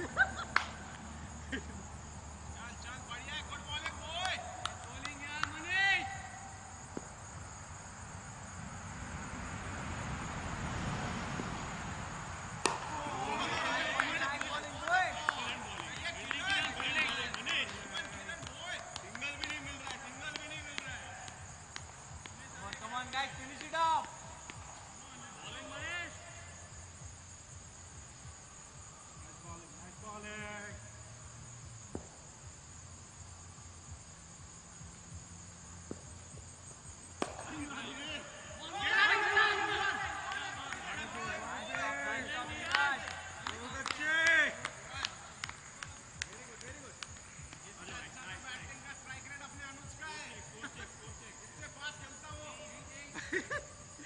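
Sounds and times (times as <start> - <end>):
insects trilling: 0.0 - 54.0.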